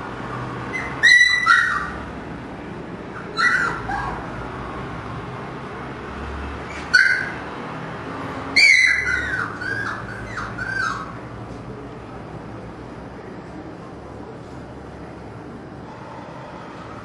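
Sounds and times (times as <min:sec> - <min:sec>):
puppies yelping: 0:00.7 - 0:02.1, 0:03.2 - 0:04.6, 0:06.7 - 0:07.4, 0:08.5 - 0:11.2.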